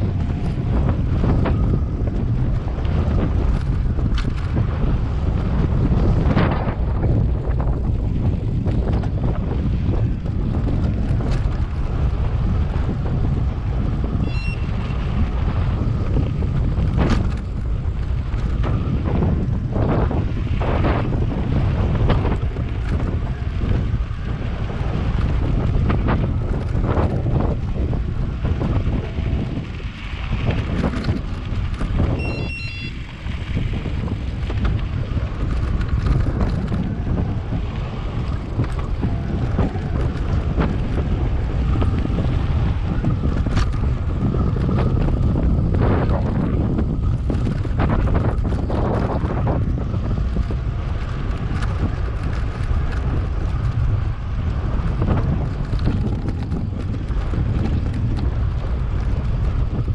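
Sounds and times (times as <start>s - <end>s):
bike knocks and rattles: 0.0s - 59.9s
wind buffeting microphone: 0.0s - 59.9s
high-pitched chirps: 32.2s - 32.9s.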